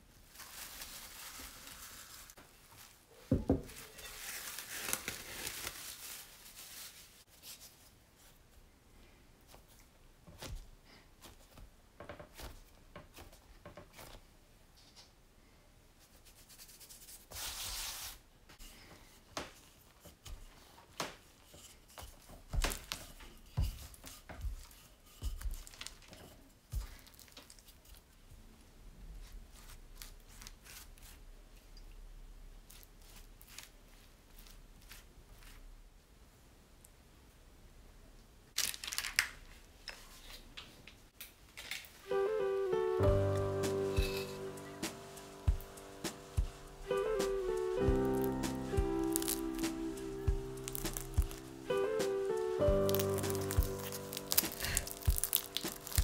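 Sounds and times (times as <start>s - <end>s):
cling film crinkling: 0.2s - 3.0s, 3.7s - 7.8s, 25.3s - 26.2s, 26.8s - 28.1s, 38.6s - 39.6s, 43.2s - 56.0s
soft knocks and thuds: 3.3s - 3.8s
rolling pin rubbing over dough: 21.3s - 26.0s.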